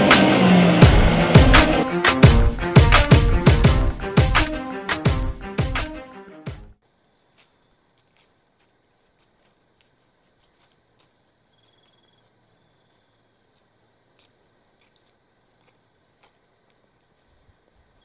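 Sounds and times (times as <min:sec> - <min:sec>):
deer walking on dry leaves: 0:07.0 - 0:18.0.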